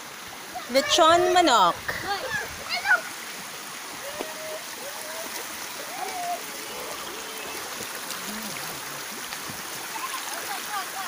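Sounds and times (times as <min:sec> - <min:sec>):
stream rushing over rock: 0:00.0 - 0:11.0
faint voices: 0:04.0 - 0:09.1.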